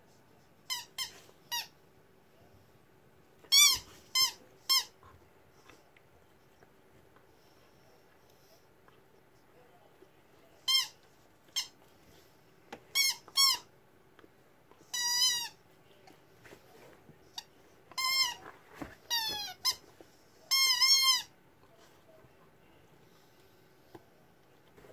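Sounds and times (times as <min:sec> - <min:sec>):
rubber chicken toy squeaking: 0:03.5 - 0:05.0, 0:10.7 - 0:11.8, 0:12.9 - 0:13.7, 0:14.9 - 0:15.6, 0:20.5 - 0:21.3.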